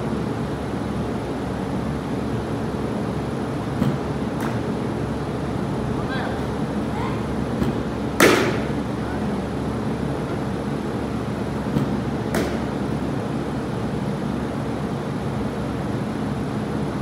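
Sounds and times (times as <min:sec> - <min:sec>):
steady hum: 0:00.0 - 0:17.0
bat hitting baseball: 0:03.8 - 0:04.7, 0:07.6 - 0:08.8, 0:11.7 - 0:12.8.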